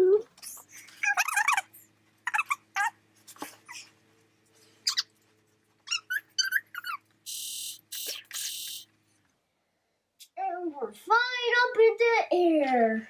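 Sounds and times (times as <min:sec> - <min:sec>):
faint electronic hum: 0:00.0 - 0:13.0
high chirping warbles: 0:00.4 - 0:02.9, 0:04.8 - 0:05.1, 0:05.9 - 0:08.8.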